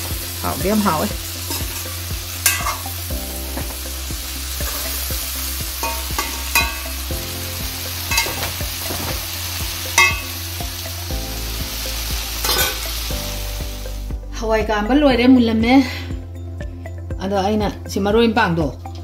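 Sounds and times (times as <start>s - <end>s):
vegetables sizzling in a pan: 0.0s - 14.2s
spatula clinking against pan: 2.4s - 2.8s, 10.0s - 10.3s.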